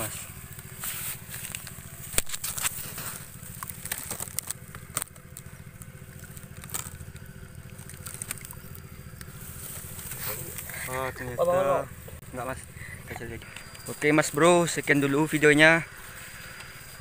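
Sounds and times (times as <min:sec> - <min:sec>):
hand rustling dry stalks: 0:00.0 - 0:12.2
steady low rumble: 0:00.0 - 0:17.0
crackling clicks: 0:00.4 - 0:09.4.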